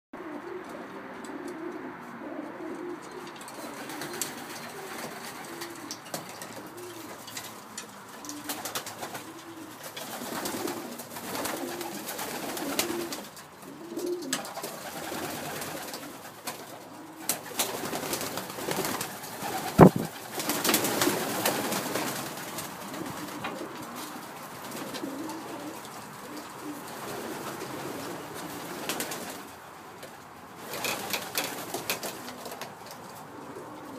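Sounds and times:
pigeons cooing: 0.2s - 33.9s.

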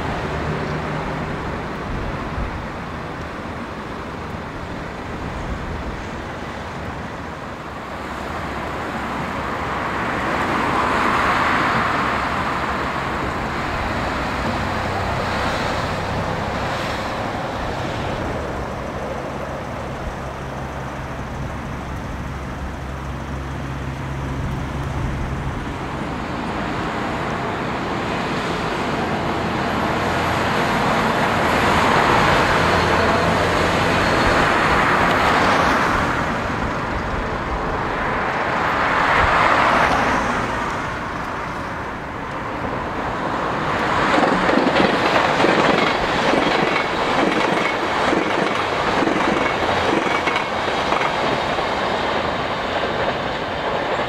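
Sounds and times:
heavy vehicles passing: 0.0s - 54.0s
train wheels clattering over rail joints: 43.8s - 54.0s.

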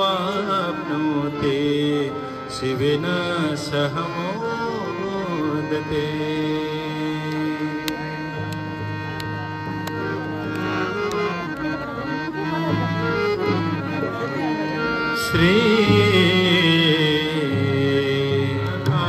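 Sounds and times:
sustained held notes: 0.0s - 19.0s
tabla: 0.0s - 19.0s.

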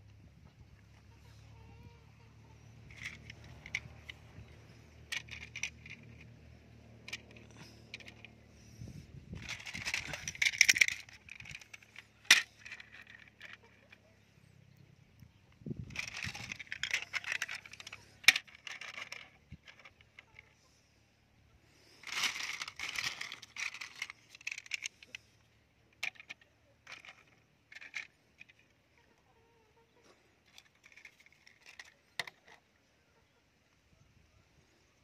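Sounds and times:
toy trucks clattering on wood: 2.5s - 14.2s, 15.6s - 20.8s, 21.8s - 29.1s, 30.0s - 32.7s.

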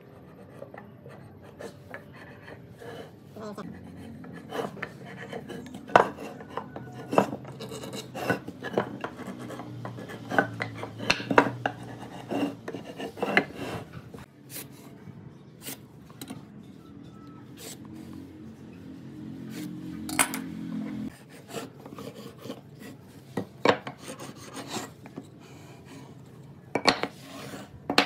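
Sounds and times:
marking gauge scraping wood: 0.6s - 14.3s.

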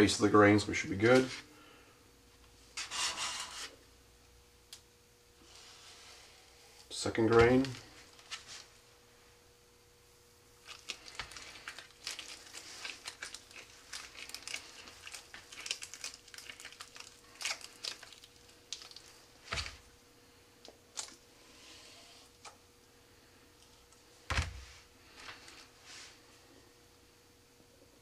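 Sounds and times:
crackly rustling of wrapping: 10.6s - 19.9s, 20.6s - 21.2s.

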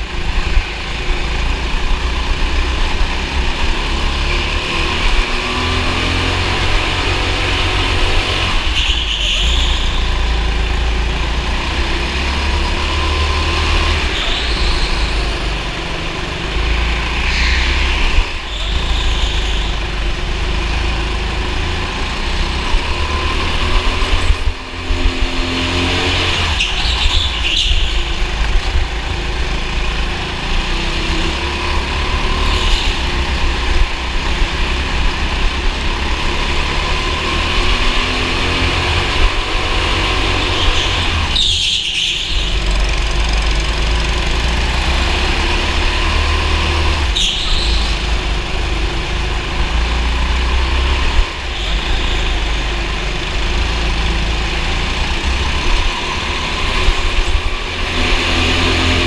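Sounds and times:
kart engine revving: 0.0s - 59.0s.

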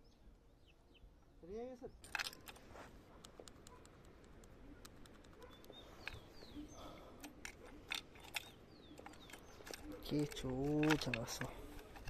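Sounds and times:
bird chirping: 0.0s - 12.0s
key rattling in ignition: 7.3s - 12.0s.

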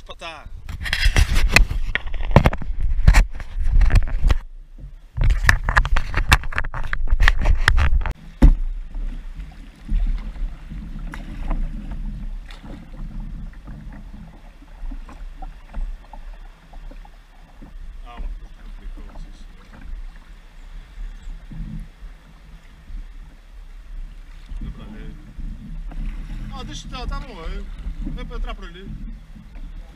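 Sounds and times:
crackling knocks on camera microphone: 0.7s - 16.2s
water splashing and lapping: 0.7s - 29.9s.

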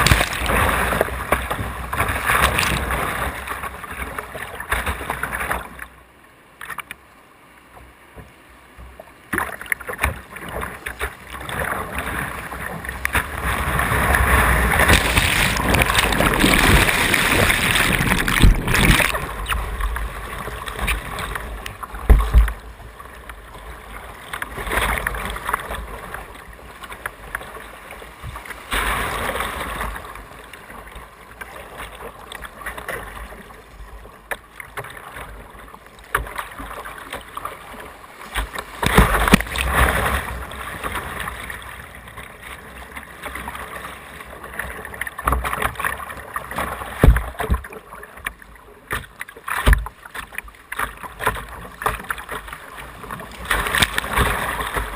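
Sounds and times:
whitewater rushing and splashing: 0.0s - 5.8s, 9.3s - 33.8s, 34.4s - 54.9s.

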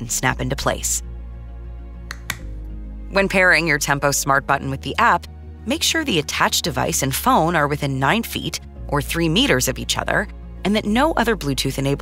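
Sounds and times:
soft background music: 0.0s - 12.0s
plastic button snapping clicks: 2.1s - 2.5s.

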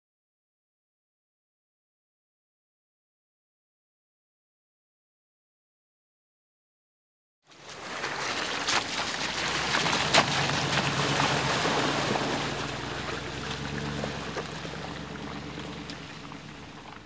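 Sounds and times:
low engine hum: 7.5s - 17.0s
tyres splashing through mud: 7.5s - 17.0s.

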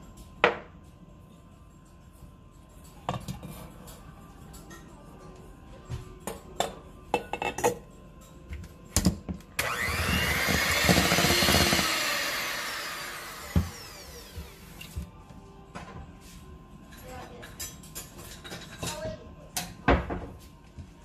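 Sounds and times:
electric hand mixer running: 9.6s - 15.0s
metal clinks against a bowl: 16.9s - 19.7s.

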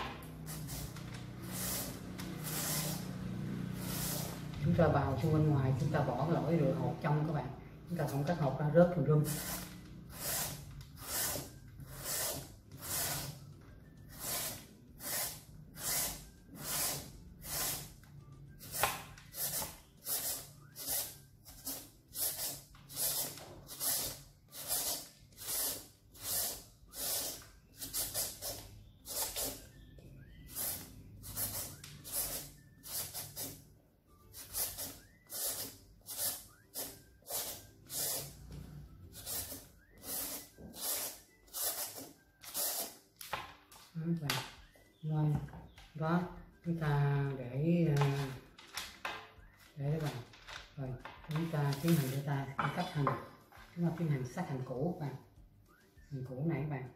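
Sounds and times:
peeler scraping papaya: 0.0s - 5.2s, 9.2s - 13.4s, 14.1s - 17.9s, 18.6s - 29.7s, 34.3s - 38.4s, 39.1s - 43.0s.

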